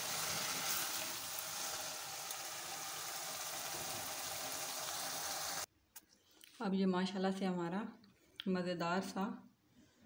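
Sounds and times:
curry sizzling and bubbling in pot: 0:00.0 - 0:05.7.

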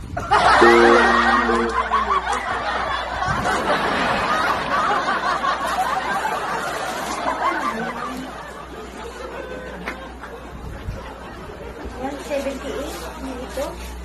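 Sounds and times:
many people laughing: 0:00.0 - 0:14.0
steady tone: 0:00.6 - 0:02.1.

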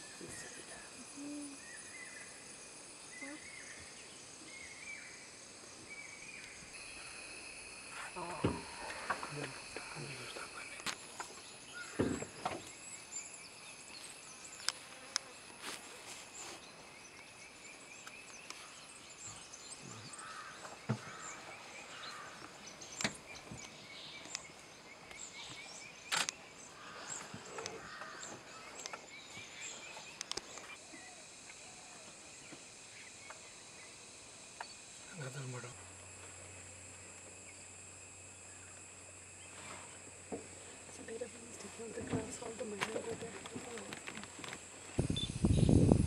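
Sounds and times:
high insect drone: 0:00.0 - 0:46.0
bird chirps: 0:45.0 - 0:45.9.

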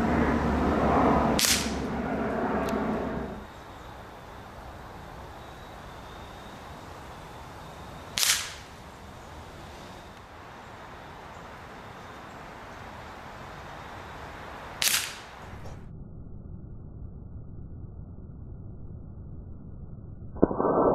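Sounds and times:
air rifle pellet cracks: 0:01.4 - 0:01.8, 0:08.2 - 0:08.7, 0:14.8 - 0:15.3.

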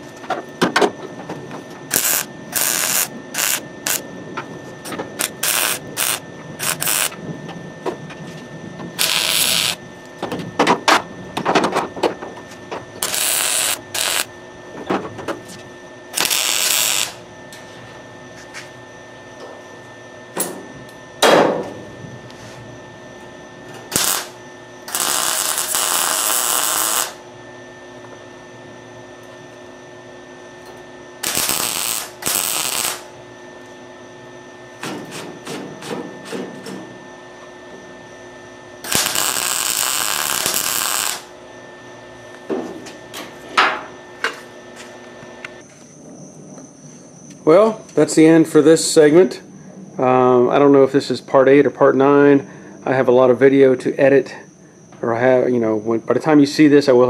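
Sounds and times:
welder crackling: 0:01.9 - 0:04.0, 0:05.2 - 0:07.2, 0:09.0 - 0:09.8, 0:13.0 - 0:14.3, 0:16.1 - 0:17.3, 0:23.9 - 0:27.3, 0:31.2 - 0:33.2, 0:38.8 - 0:41.4.

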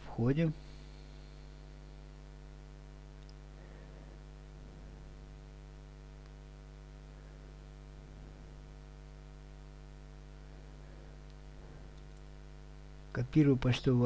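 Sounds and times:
faint electrical mains hum: 0:00.0 - 0:14.0
faint click: 0:03.2 - 0:03.4.

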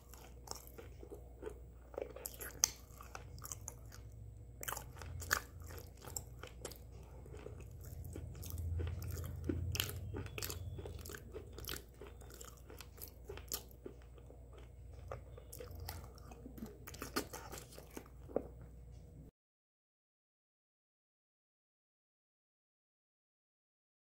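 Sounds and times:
person chewing: 0:00.0 - 0:18.6.

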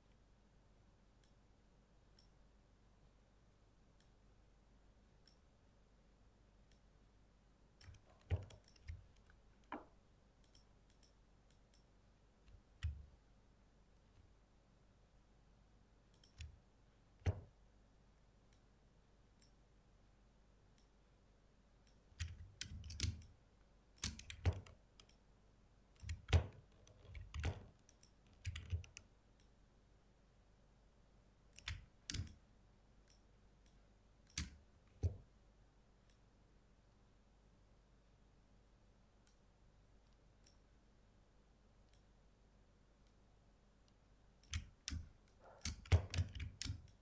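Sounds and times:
computer mouse clicks: 0:07.8 - 0:11.9, 0:16.1 - 0:16.6, 0:21.8 - 0:23.4, 0:24.0 - 0:25.2, 0:26.0 - 0:29.5, 0:31.5 - 0:32.4, 0:33.1 - 0:35.2, 0:41.9 - 0:42.1, 0:43.8 - 0:47.0.

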